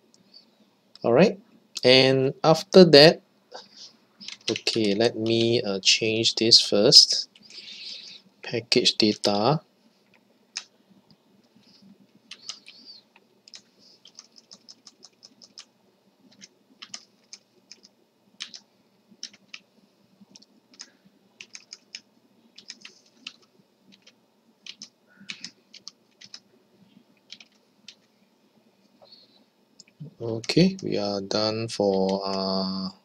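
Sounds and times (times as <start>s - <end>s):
keyboard typing: 4.2s - 5.6s, 12.2s - 15.7s, 16.3s - 19.6s, 20.3s - 26.4s, 27.2s - 28.1s, 31.8s - 32.5s.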